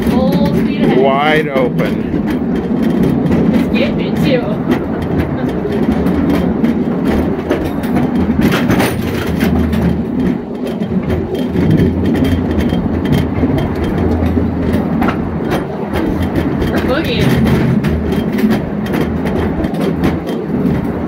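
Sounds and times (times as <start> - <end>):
steel wheels rumbling on rail: 0.0 - 21.0
wheels clacking over rail joints: 0.0 - 21.0.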